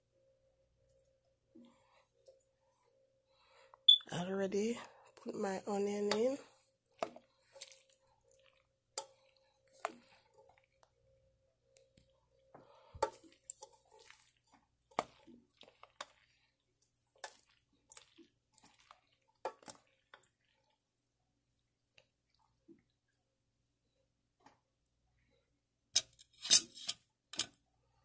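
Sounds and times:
wet squishing of stirred food: 0:04.9 - 0:11.0, 0:11.7 - 0:23.2
spoon tapping and scraping a pot: 0:06.0 - 0:06.4, 0:07.0 - 0:10.9, 0:12.0 - 0:16.3, 0:19.4 - 0:20.3.

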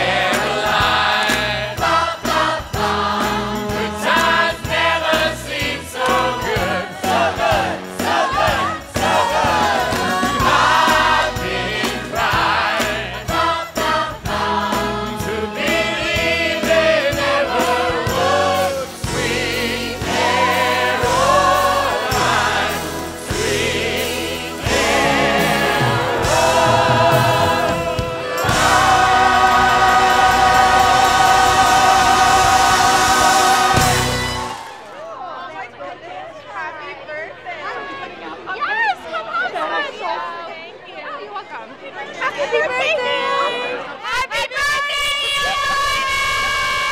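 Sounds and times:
singer and chorus singing: 0:00.0 - 0:34.8
band playing: 0:00.0 - 0:35.0.

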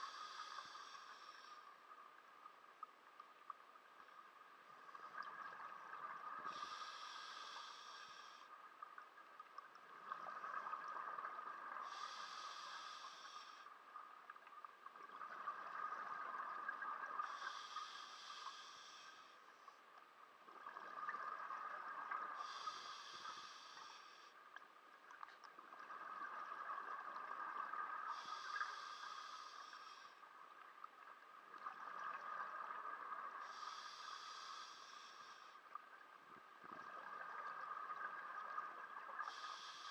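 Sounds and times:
diver breathing through regulator: 0:00.0 - 0:01.7, 0:06.4 - 0:08.5, 0:11.8 - 0:13.7, 0:17.2 - 0:19.4, 0:22.4 - 0:24.4, 0:28.1 - 0:30.2, 0:33.4 - 0:35.6, 0:39.2 - 0:39.9.

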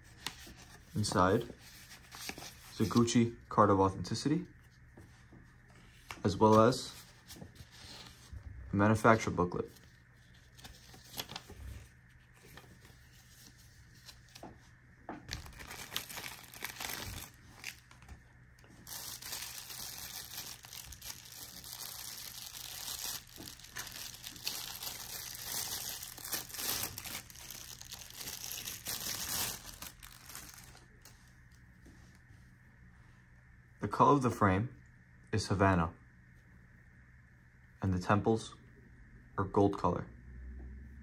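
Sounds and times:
packaging crinkling: 0:15.3 - 0:31.1.

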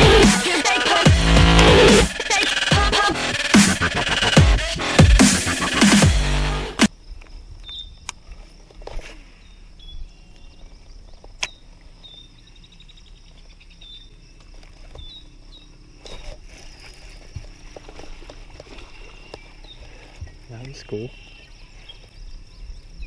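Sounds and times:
bird chirping: 0:07.6 - 0:08.4, 0:09.1 - 0:16.9, 0:18.7 - 0:23.0.

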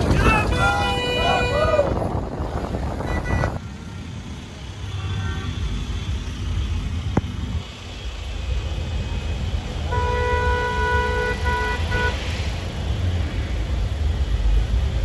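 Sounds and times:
low vehicle cabin rumble: 0:00.0 - 0:03.6
vehicle horn honking: 0:03.0 - 0:04.0, 0:04.9 - 0:05.6, 0:09.9 - 0:12.2.

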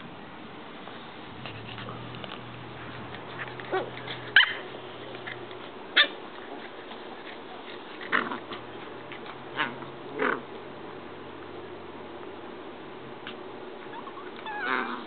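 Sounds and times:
puppies yelping: 0:02.8 - 0:06.3, 0:13.8 - 0:15.0.

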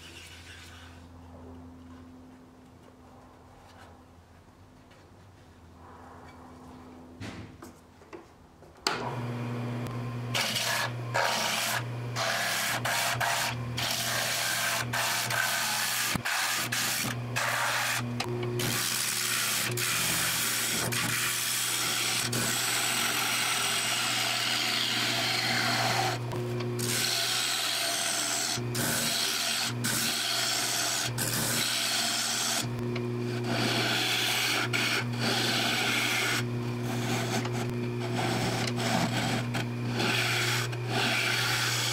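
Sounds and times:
turning tool scraping wood: 0:00.0 - 0:01.0, 0:10.3 - 0:41.9
wood lathe motor hum: 0:08.9 - 0:41.9.

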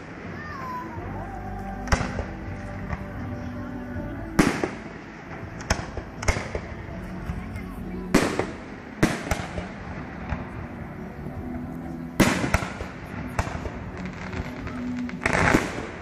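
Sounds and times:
firework pops and crackling: 0:01.8 - 0:03.2, 0:04.4 - 0:10.6, 0:12.2 - 0:16.0.

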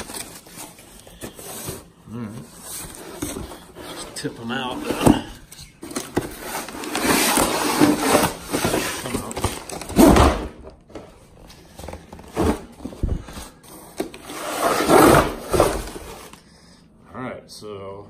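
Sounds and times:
plastic scraping against cardboard: 0:00.0 - 0:10.2.

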